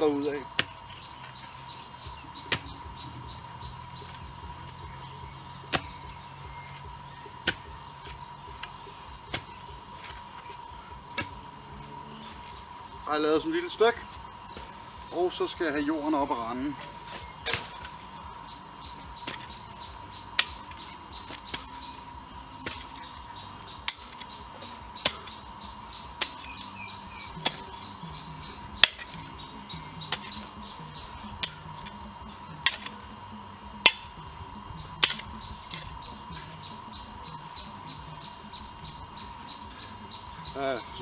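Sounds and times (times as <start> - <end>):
hoe chopping into hard soil: 2.4 - 3.1, 5.2 - 10.3, 11.0 - 11.6, 16.8 - 18.3, 18.9 - 26.7, 28.7 - 33.0, 33.8 - 36.5.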